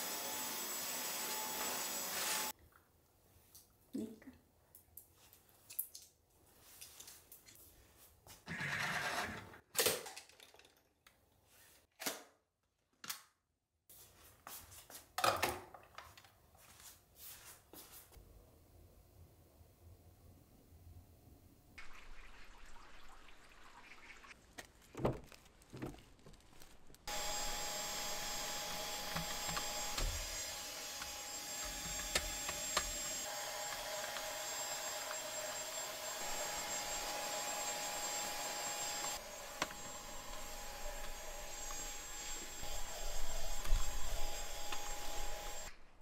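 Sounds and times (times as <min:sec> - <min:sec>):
cordless vacuum motor whine: 0:00.0 - 0:02.5, 0:27.1 - 0:45.7.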